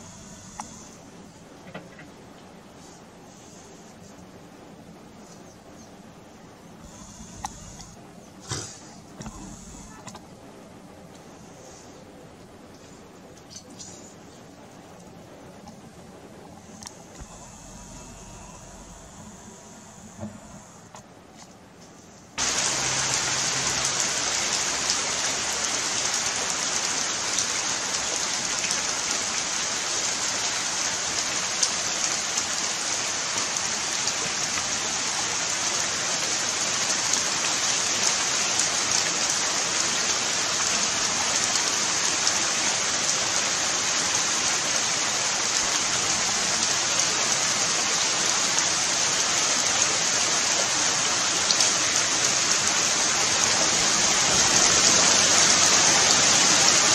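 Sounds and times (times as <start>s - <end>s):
heavy rain on foliage: 0.0s - 56.9s.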